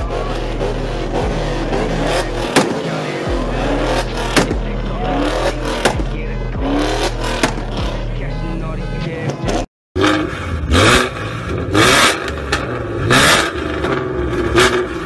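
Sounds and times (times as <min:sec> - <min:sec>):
car engine revving: 0:00.0 - 0:15.0
exhaust pops and bangs: 0:01.1 - 0:04.8, 0:05.7 - 0:06.2, 0:07.3 - 0:08.0.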